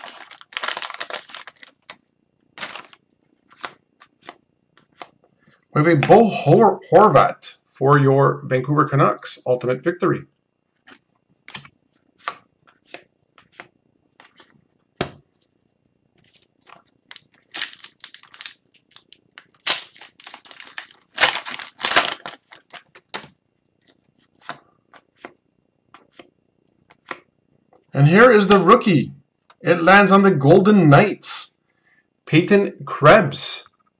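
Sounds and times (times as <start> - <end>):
wrapper tearing and crinkling: 0.0 - 2.0, 2.6 - 3.0, 16.3 - 23.2
cards rustling and clicking: 0.0 - 5.3, 10.8 - 27.3.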